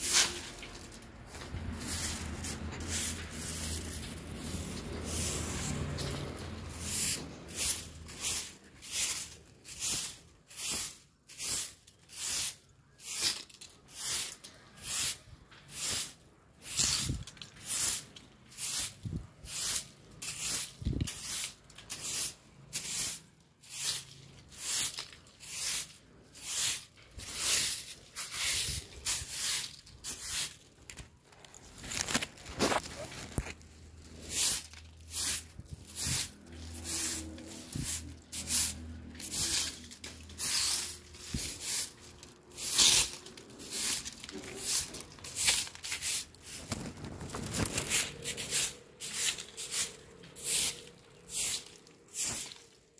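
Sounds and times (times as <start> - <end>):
leaves brushed along: 0.0 - 10.9, 31.3 - 52.9
broom sweeping concrete: 0.0 - 52.9.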